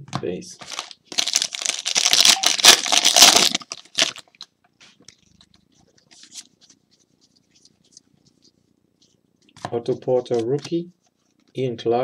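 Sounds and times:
foil wrapper crinkling: 0.6 - 4.5.

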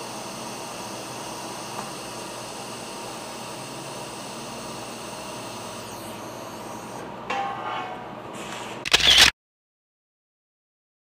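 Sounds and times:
ringing metallic clang: 7.3 - 8.1.

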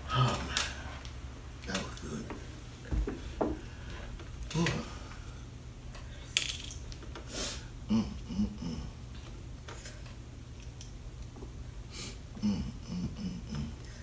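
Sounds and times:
person humming and groaning: 0.0 - 0.7, 7.8 - 9.1, 12.4 - 14.0.

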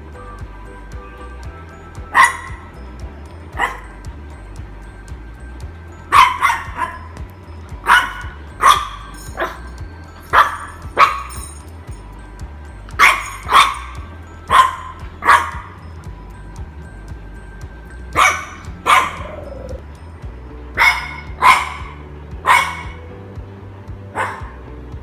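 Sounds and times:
puppy barking: 2.1 - 2.6, 3.5 - 4.0, 6.1 - 7.1, 7.8 - 9.7, 10.3 - 11.5, 13.0 - 15.8, 18.2 - 19.8, 20.8 - 23.0, 24.1 - 24.7.

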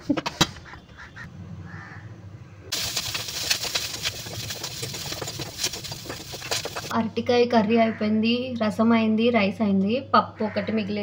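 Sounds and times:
food sizzling in a pan: 2.7 - 6.9.

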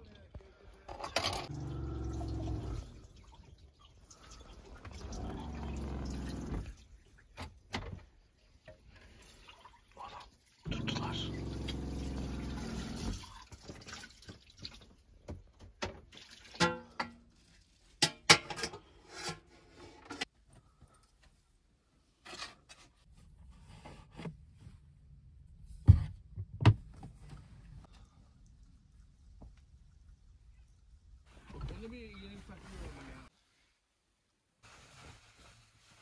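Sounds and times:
dishes clattering and clinking: 16.6 - 17.3, 18.0 - 19.4.

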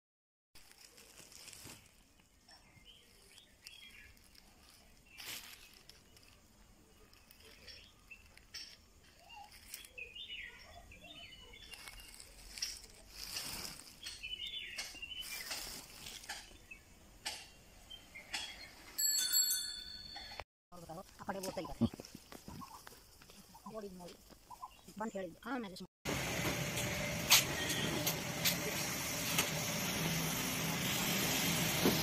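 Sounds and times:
dried pepper rustling in sack: 0.6 - 16.6
faint chirping: 0.7 - 16.9.

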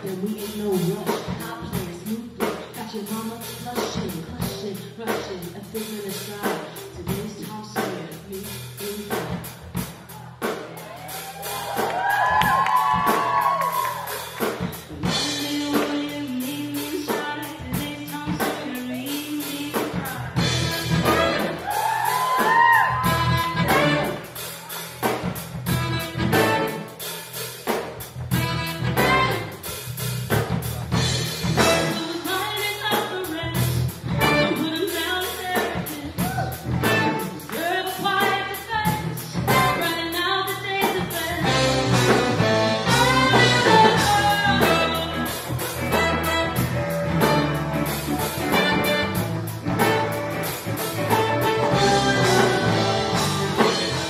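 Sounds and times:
woman singing: 0.0 - 9.6, 14.9 - 24.1, 31.6 - 42.2, 42.8 - 46.2, 51.0 - 54.0
live band music: 0.0 - 54.0.

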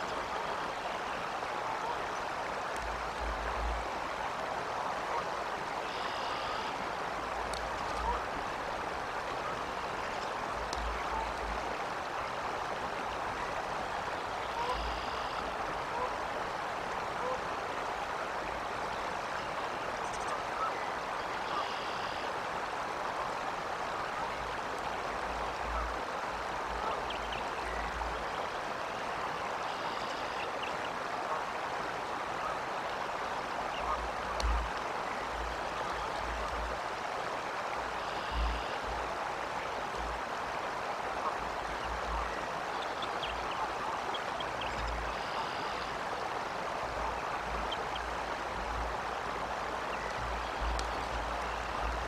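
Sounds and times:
flowing water rushing: 0.0 - 52.0.

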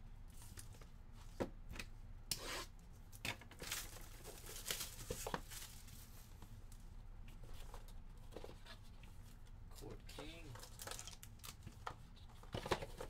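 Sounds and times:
wrapping tearing and crinkling: 3.4 - 6.4, 10.6 - 11.8.

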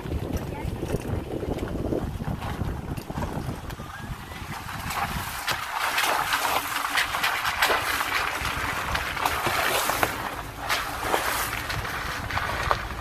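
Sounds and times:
tyres rolling through wet mud: 0.0 - 13.0
stones and grit clicking: 4.4 - 13.0.

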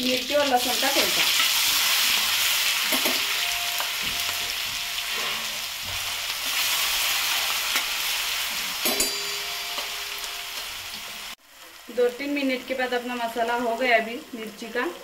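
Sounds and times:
paste sizzling in hot oil: 0.0 - 15.0
spatula scraping steel pan: 5.1 - 5.7.

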